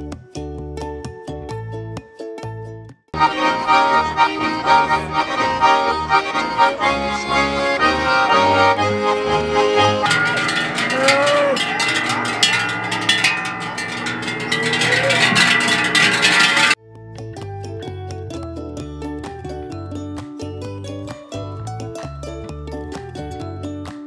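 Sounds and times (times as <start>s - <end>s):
plucked double bass: 0.0s - 23.9s
accordions playing folk tune: 3.2s - 11.2s
cowbells clanging: 3.2s - 16.8s.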